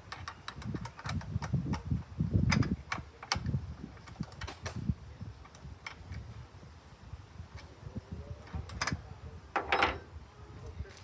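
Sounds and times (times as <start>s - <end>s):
hand tools clicking and knocking: 0.0s - 4.8s.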